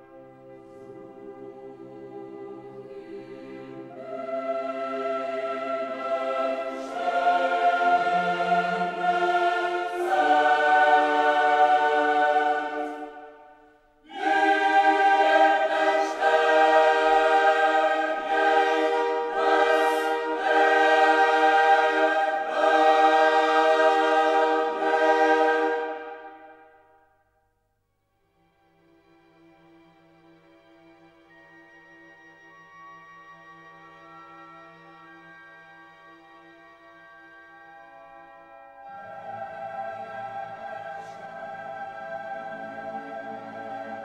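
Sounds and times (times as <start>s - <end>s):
choir singing held chords: 0.7s - 27.1s, 38.4s - 44.0s.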